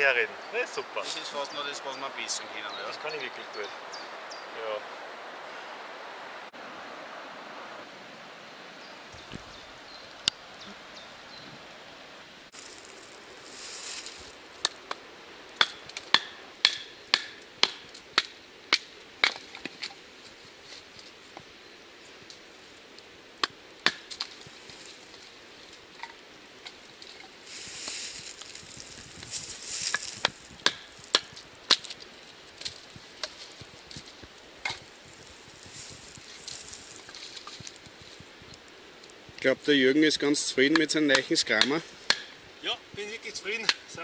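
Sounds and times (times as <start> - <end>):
knife chopping firewood: 15.6 - 19.9, 23.4 - 24.3, 29.9 - 32.1, 40.7 - 42.4, 43.6 - 43.9.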